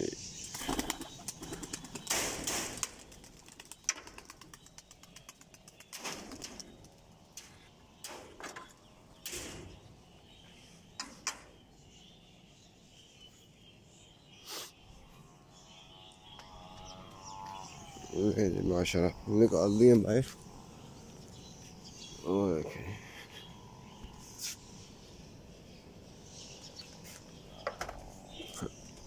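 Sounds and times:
pigeon wings flapping: 0.5 - 7.0.

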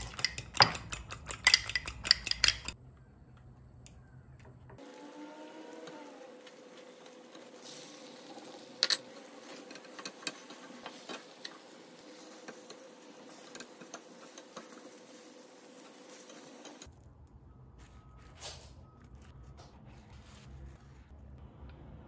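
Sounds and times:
egg frying in a pan: 4.8 - 16.9
spatula scraping and tapping pan: 8.5 - 16.9.

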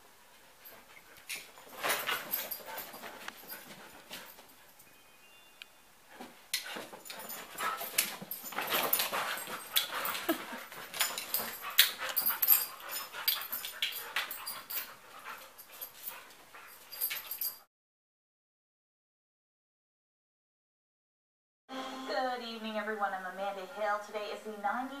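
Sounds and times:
dogs scuffling: 0.3 - 4.8, 6.1 - 17.6
dog vocal sounds: 8.9 - 14.7.

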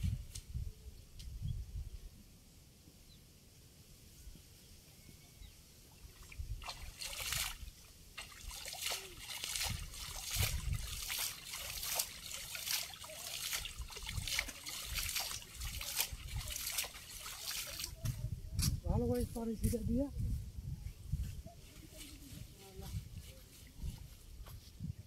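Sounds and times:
water splashing and trickling: 5.9 - 18.3.

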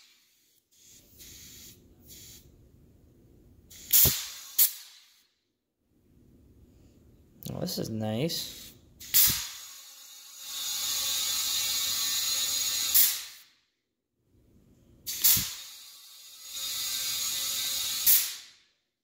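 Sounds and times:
compressed air hissing into tire: 0.0 - 2.5, 3.7 - 5.2, 8.4 - 9.9, 15.1 - 15.9.

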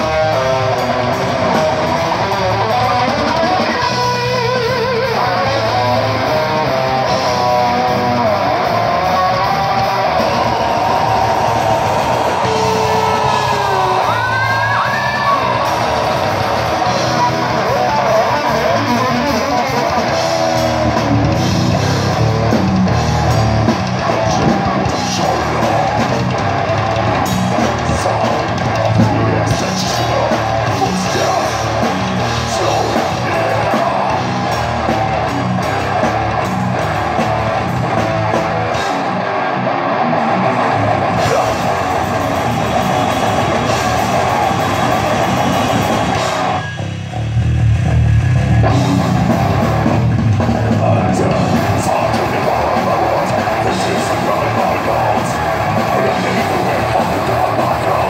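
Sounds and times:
person singing: 0.0 - 22.2, 23.9 - 26.4, 27.5 - 34.6, 41.1 - 42.4, 50.4 - 58.0
distorted electric guitar: 0.0 - 58.0
drum kit: 0.0 - 58.0
heavy metal band playing live: 0.0 - 58.0.

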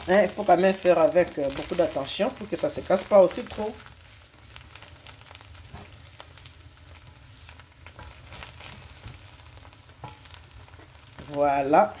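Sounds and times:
faint sizzle of rice cooking: 0.0 - 12.0
spatula scraping a pan: 3.4 - 11.3.

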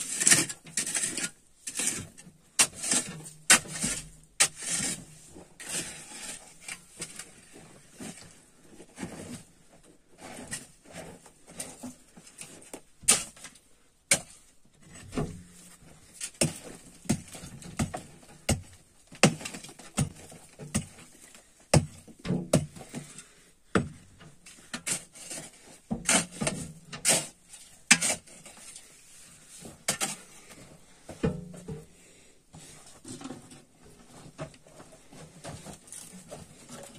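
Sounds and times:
digging tool striking dirt: 13.1 - 13.4, 21.8 - 22.8.

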